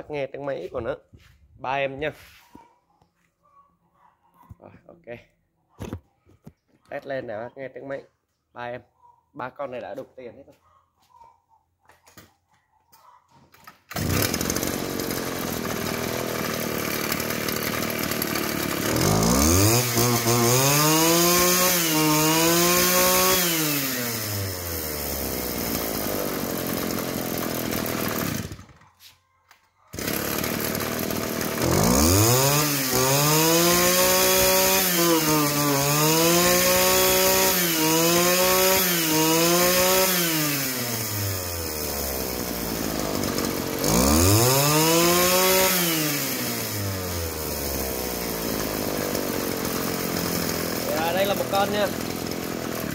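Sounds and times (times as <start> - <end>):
brush cutter engine revving: 13.6 - 28.8, 29.9 - 52.9.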